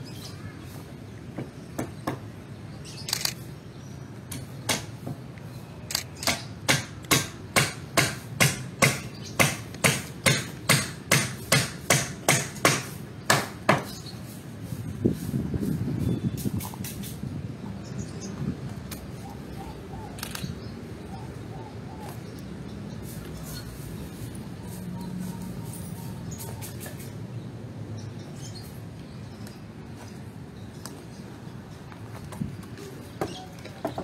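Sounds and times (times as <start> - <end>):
hammer striking wood: 1.8 - 2.2, 4.7 - 5.2, 6.3 - 14.0.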